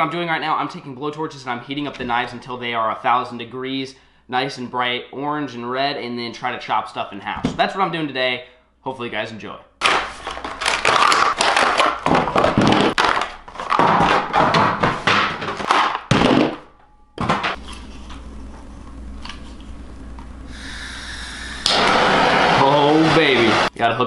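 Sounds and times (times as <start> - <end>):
plastic packaging crackling and tearing: 10.1 - 12.1
steady hiss: 20.5 - 23.7.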